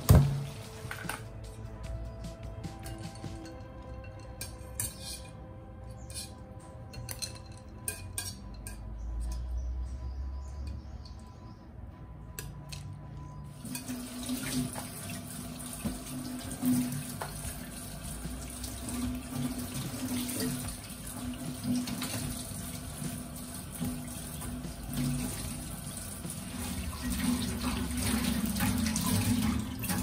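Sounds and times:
tap running into a sink: 0.0s - 1.2s, 13.9s - 23.2s.

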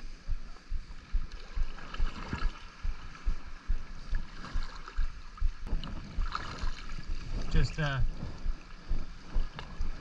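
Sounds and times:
water lapping against a kayak: 0.0s - 10.0s
low thumps against the hull: 5.0s - 10.0s.

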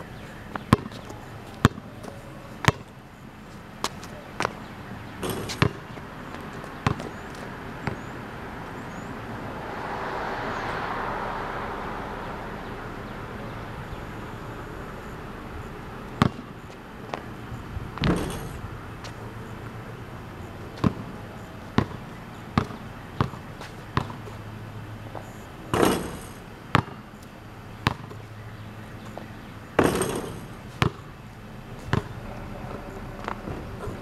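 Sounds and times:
basketball bouncing on concrete: 0.5s - 3.0s, 5.2s - 8.1s, 16.1s - 17.3s, 18.0s - 19.2s, 20.7s - 24.4s, 25.1s - 27.1s, 27.8s - 28.2s, 29.8s - 31.1s, 31.8s - 33.8s
ball rattling hoop rim and backboard: 5.2s - 5.9s, 16.2s - 17.2s, 18.0s - 18.7s, 25.7s - 27.0s, 29.8s - 31.1s, 31.8s - 32.2s.

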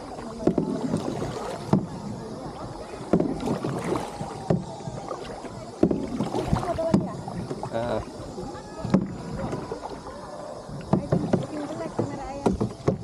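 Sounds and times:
paddle splashing in water: 0.0s - 13.0s
small knocks: 10.9s - 13.0s.

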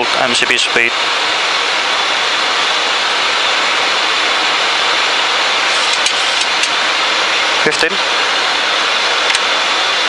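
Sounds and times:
aircraft cockpit air rushing hiss: 4.8s - 6.8s.

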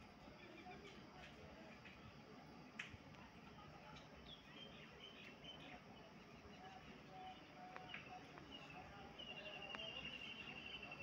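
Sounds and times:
faint bird chirps: 0.2s - 1.0s, 3.5s - 11.0s.

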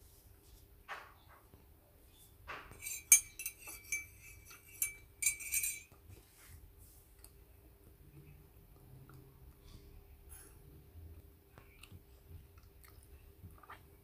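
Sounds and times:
light ringing clinks: 2.7s - 6.0s.

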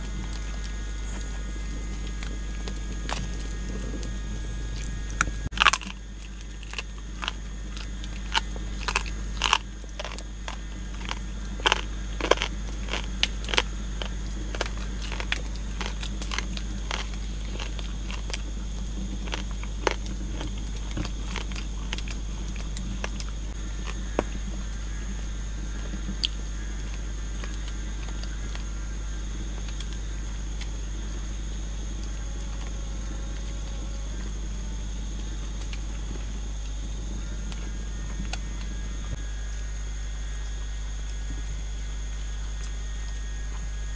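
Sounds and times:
person chewing crunchy food: 0.0s - 24.6s
steady low hum: 0.0s - 43.9s.

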